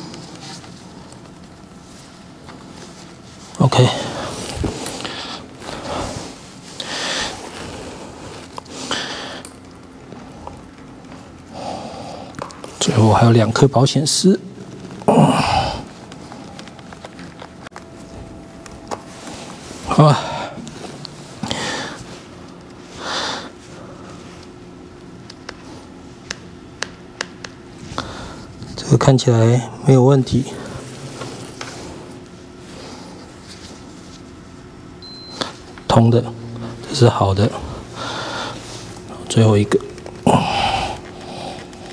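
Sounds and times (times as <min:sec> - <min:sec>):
gloved hands rustling: 0:00.0 - 0:13.2, 0:14.6 - 0:28.8, 0:37.5 - 0:41.9
faint steady hum: 0:00.0 - 0:41.9
breathy nasal exhales: 0:37.7 - 0:39.0.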